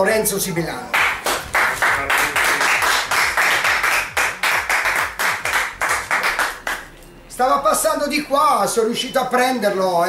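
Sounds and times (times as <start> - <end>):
hands clapping: 0.9 - 7.0.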